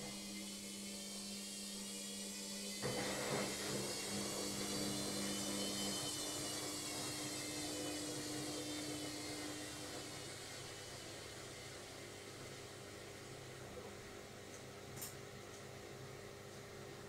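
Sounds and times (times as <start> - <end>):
washing machine spinning: 0.0 - 17.0.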